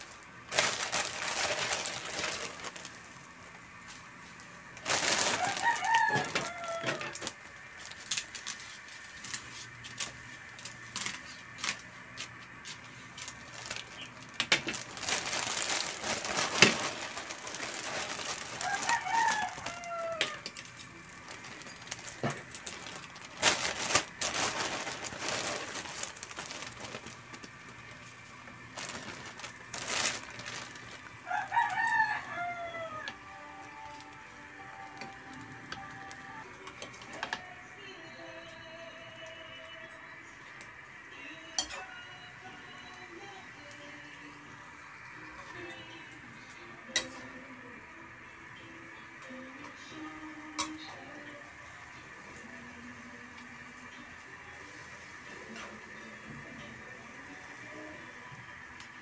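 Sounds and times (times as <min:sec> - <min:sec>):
rooster crowing: 0:05.0 - 0:07.4, 0:18.3 - 0:20.6, 0:31.2 - 0:34.9.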